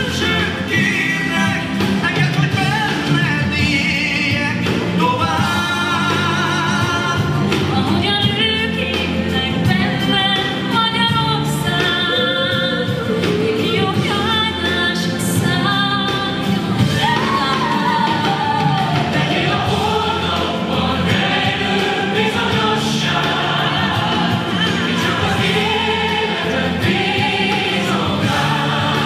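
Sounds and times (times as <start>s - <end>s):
instrumental backing music: 0.0s - 29.0s
children singing together: 16.8s - 29.0s.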